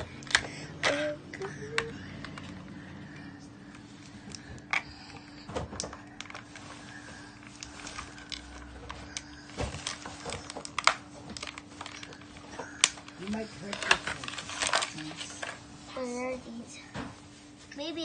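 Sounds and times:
faint steady hum: 0.0s - 18.0s
plastic packaging crackling: 5.7s - 15.6s.

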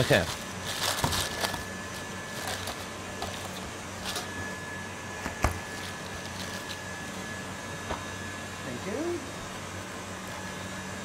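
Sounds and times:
butter paper rustling: 0.0s - 4.4s, 5.6s - 6.9s
machine hum: 0.0s - 11.0s.

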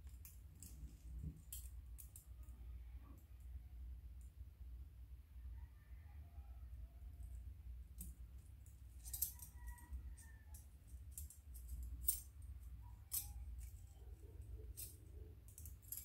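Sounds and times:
metal rings and chain clinking: 7.9s - 16.0s.

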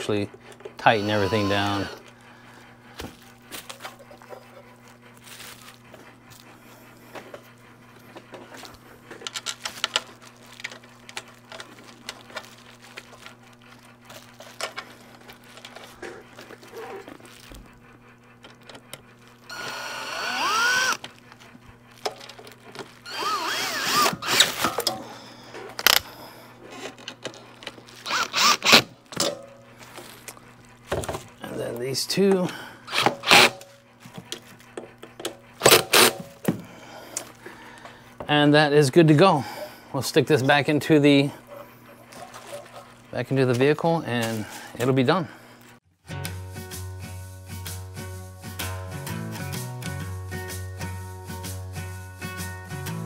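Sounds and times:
cordless drill driving screws: 0.8s - 2.0s, 19.5s - 21.0s, 23.0s - 24.7s, 28.0s - 29.0s, 32.9s - 33.6s, 35.6s - 36.2s
clicks and knocks of parts handled: 21.0s - 23.0s.

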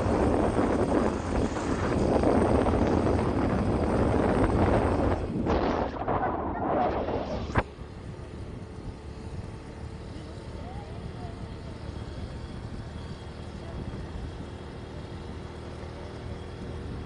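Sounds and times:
wind buffeting microphone: 0.0s - 9.9s
moving vehicle rumble: 0.0s - 17.0s.

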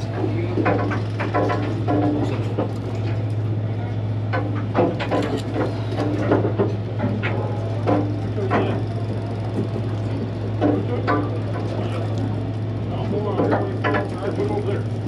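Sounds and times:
boat machinery hum: 0.0s - 15.0s
clicks and clatter: 0.2s - 3.4s, 4.3s - 8.9s.

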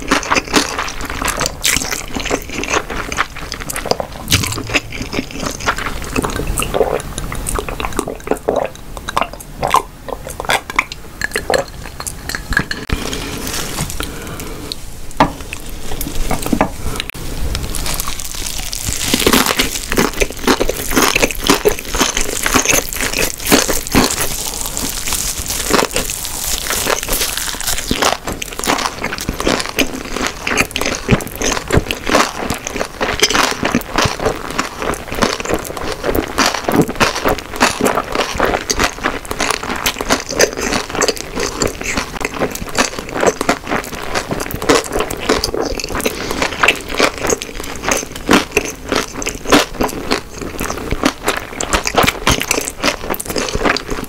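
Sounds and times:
crunchy wet chewing: 0.0s - 14.8s, 15.4s - 54.0s
sipping and swallowing water: 3.7s - 13.4s
small mouth clicks: 4.2s - 12.9s.

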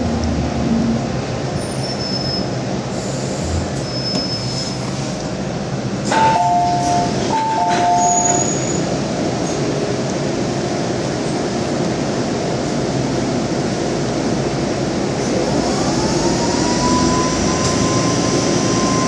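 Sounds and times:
train rumbling: 0.0s - 19.0s
wheel or brake squeals: 1.6s - 2.6s, 3.8s - 5.0s, 7.8s - 8.9s.

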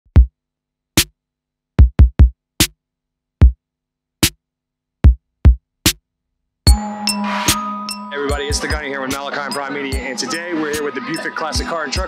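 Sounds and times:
drum machine hits: 1.8s - 2.7s.

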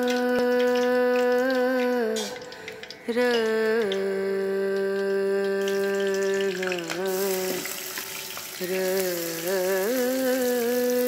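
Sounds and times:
person humming: 0.0s - 7.8s, 8.6s - 11.0s
onion sizzling in hot fat: 5.7s - 11.0s.

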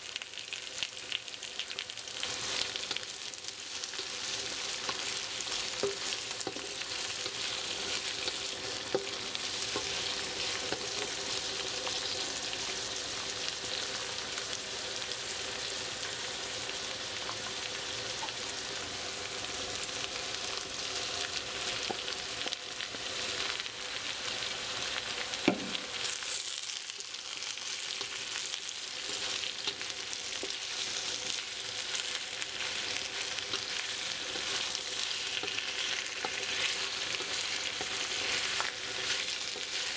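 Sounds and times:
food sizzling in a wok: 0.0s - 39.9s
sharp knock on a pan: 25.5s - 25.8s.

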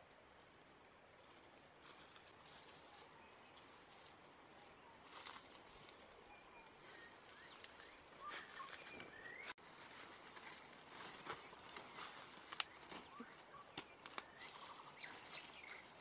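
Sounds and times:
footsteps rustling dry leaves: 1.2s - 13.4s, 14.0s - 16.0s
faint bird chirps and whistles: 2.7s - 9.6s, 10.5s - 16.0s.

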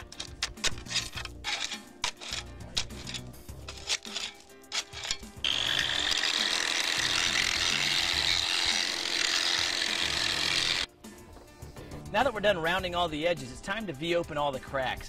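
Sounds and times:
angle grinder grinding concrete: 0.0s - 10.9s.

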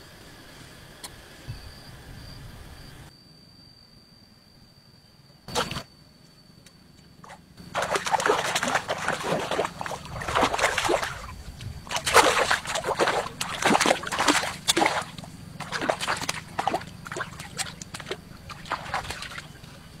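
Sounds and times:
fish splashing in water: 7.2s - 19.6s.

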